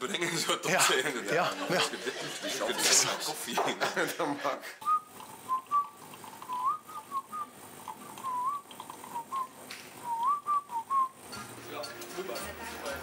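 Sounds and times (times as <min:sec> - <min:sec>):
person whistling a tune: 0:06.5 - 0:07.5, 0:08.2 - 0:08.6, 0:09.2 - 0:11.2.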